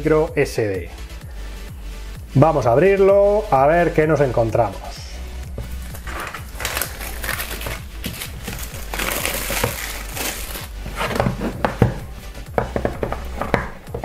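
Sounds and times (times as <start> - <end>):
plastic film crinkling: 5.6 - 11.8.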